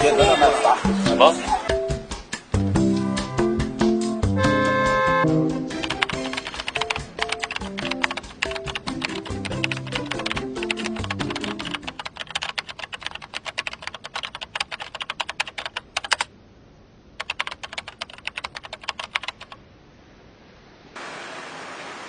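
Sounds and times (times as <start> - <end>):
background music: 0.0 - 12.1
keyboard typing: 5.7 - 16.3, 17.2 - 19.6.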